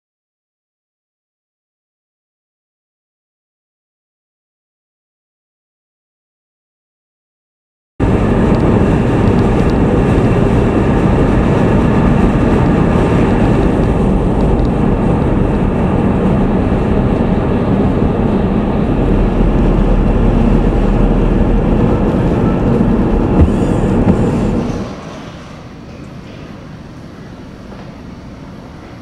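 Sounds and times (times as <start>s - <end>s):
deep hum: 8.0s - 25.0s
vehicle running noise: 8.0s - 28.9s.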